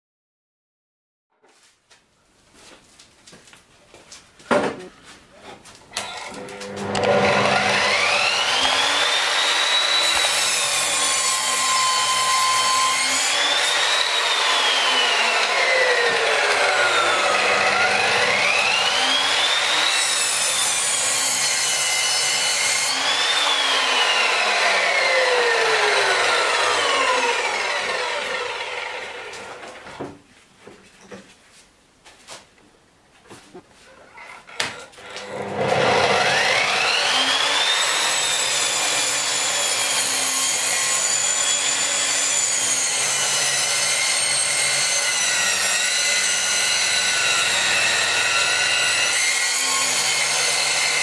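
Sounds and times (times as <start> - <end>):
saw whining cutting wood: 6.0 - 29.8, 34.5 - 51.0.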